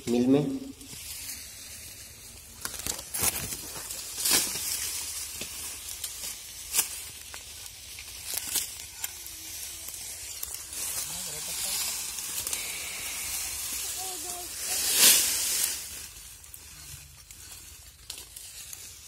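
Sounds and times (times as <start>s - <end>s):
dry leaves rustling and crackling: 0.0s - 19.0s
cane cracking and snapping: 2.4s - 11.0s.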